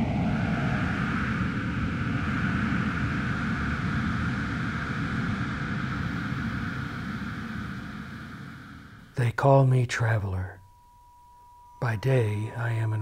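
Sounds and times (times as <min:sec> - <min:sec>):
steady rushing noise: 0:00.0 - 0:09.2
deep rumble: 0:00.0 - 0:09.3.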